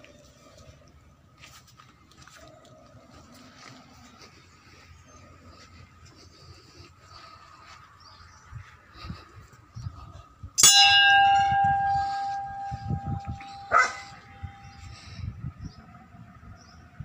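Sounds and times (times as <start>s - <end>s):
temple bell ringing: 10.6s - 15.0s.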